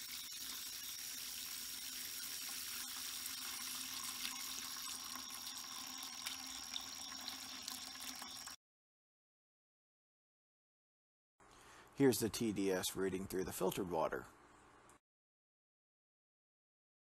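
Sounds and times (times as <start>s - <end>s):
hose water splashing into bucket: 0.0s - 8.6s.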